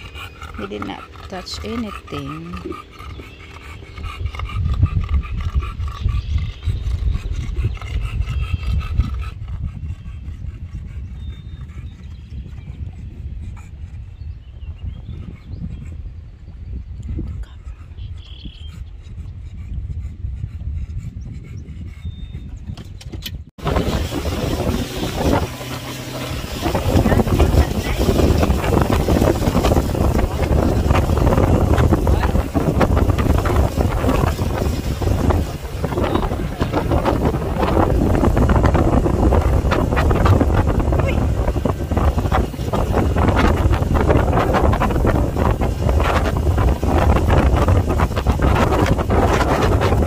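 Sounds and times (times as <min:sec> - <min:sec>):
outboard motor running: 0:00.0 - 0:09.4, 0:23.6 - 0:50.0
wind buffeting microphone: 0:00.0 - 0:50.0
water rushing: 0:23.6 - 0:50.0.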